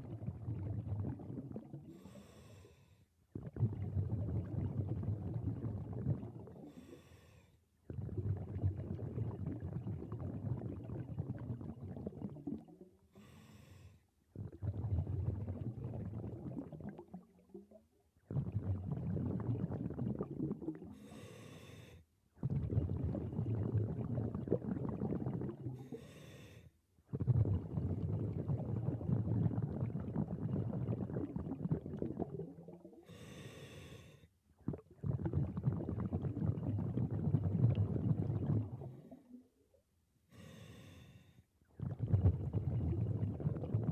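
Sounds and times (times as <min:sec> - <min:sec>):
exhaled air bubbling: 0:00.0 - 0:43.9
regulator inhale hiss: 0:02.0 - 0:03.0, 0:06.7 - 0:07.6, 0:13.2 - 0:14.0, 0:21.0 - 0:22.0, 0:25.8 - 0:26.7, 0:33.1 - 0:34.3, 0:40.3 - 0:41.4.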